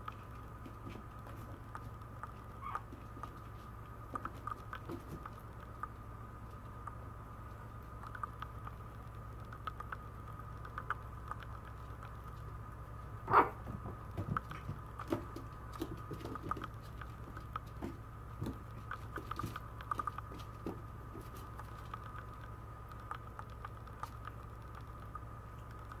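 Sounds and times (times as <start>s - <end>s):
claws clicking on vinyl floor: 0.0s - 7.0s, 13.6s - 26.0s
faint steady hum: 0.0s - 26.0s.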